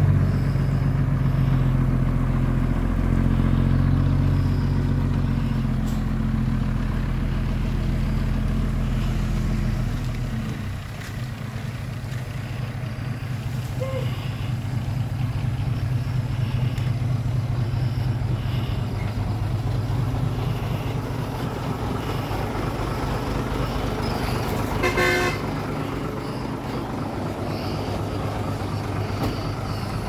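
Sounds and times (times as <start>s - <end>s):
diesel truck engine running: 0.0s - 30.0s
truck horn toot: 23.6s - 26.4s.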